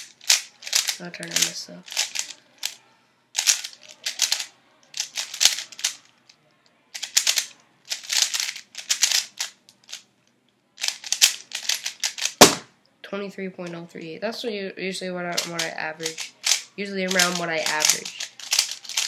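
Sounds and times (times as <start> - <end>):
plastic puzzle cube clicking: 0.0 - 2.8, 3.4 - 6.1, 6.9 - 10.0, 10.8 - 12.5, 15.4 - 19.0
sharp knock: 12.4 - 12.7.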